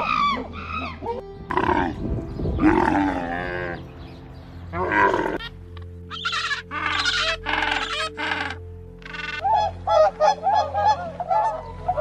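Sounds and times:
background music: 0:00.0 - 0:12.0
animal calls: 0:04.7 - 0:05.5, 0:06.1 - 0:12.0.

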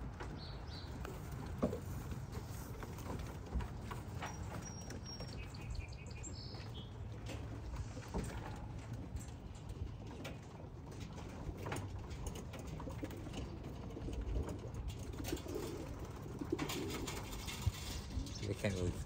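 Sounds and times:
pigeons cooing: 0:11.4 - 0:19.0.

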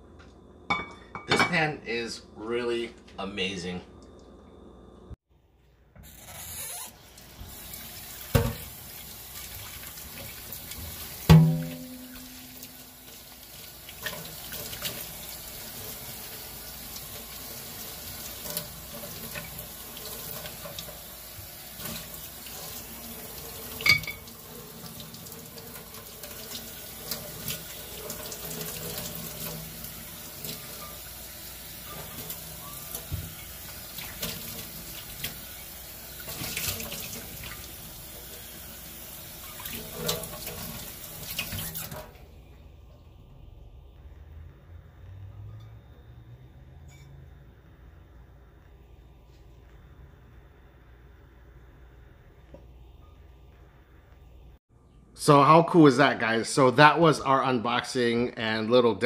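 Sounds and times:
tap water running: 0:05.9 - 0:42.7
pan clinking and knocking: 0:11.3 - 0:12.5, 0:23.8 - 0:24.3.

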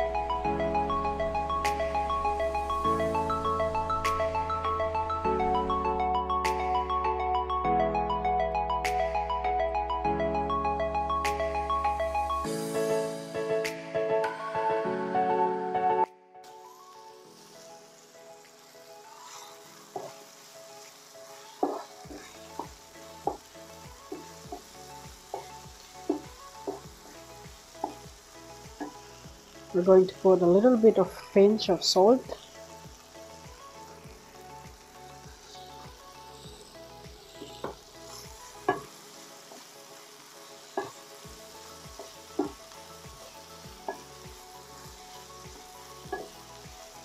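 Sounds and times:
food sizzling in a frying pan: 0:00.0 - 0:08.0, 0:10.4 - 0:13.6, 0:16.4 - 0:47.0
wooden spoon knocking pan: 0:42.0 - 0:42.6.

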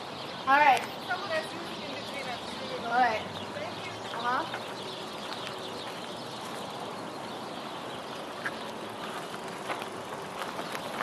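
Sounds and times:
birds calling sharply: 0:00.0 - 0:11.0
steady outdoor hiss: 0:00.0 - 0:11.0.

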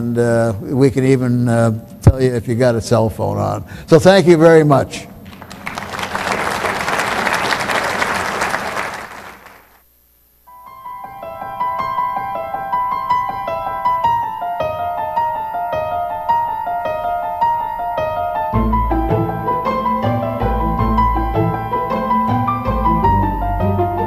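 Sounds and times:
audience applauding: 0:05.2 - 0:09.8
slow piano music: 0:10.5 - 0:24.0.

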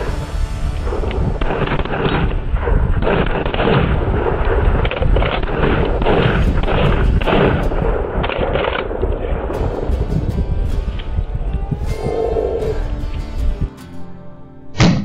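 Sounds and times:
shotgun shots: 0:01.3 - 0:09.0.

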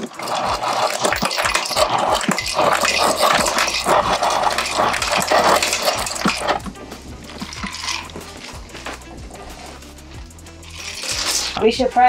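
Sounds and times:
ice cubes clattering into glass: 0:00.0 - 0:06.7, 0:07.3 - 0:08.9, 0:10.7 - 0:11.6
ice dispenser motor hum: 0:00.0 - 0:09.8.

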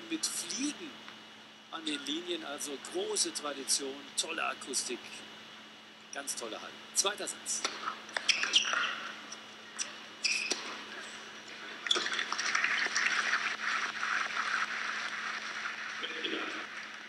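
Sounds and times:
crowd applauding: 0:12.1 - 0:17.0.

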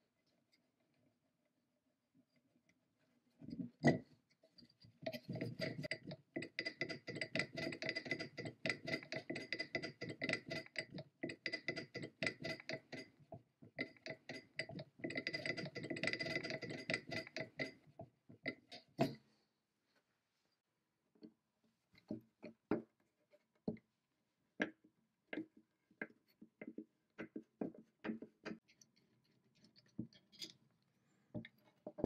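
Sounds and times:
metal-on-metal scraping: 0:05.1 - 0:13.1, 0:13.8 - 0:17.8.

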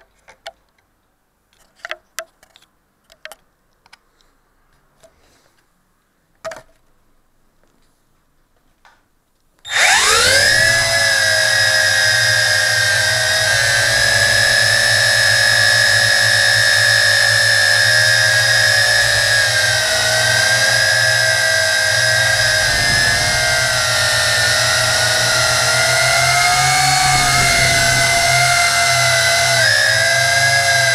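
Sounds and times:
drone propellers whining: 0:09.7 - 0:30.9.

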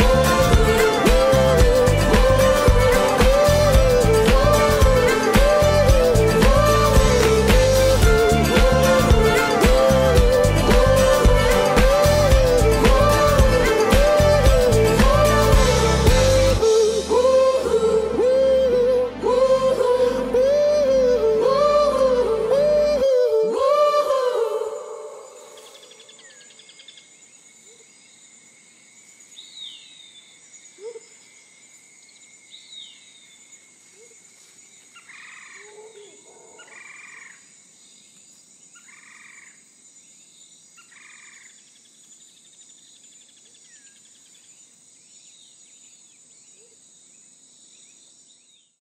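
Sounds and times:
high insect whine: 0:00.0 - 0:20.0.

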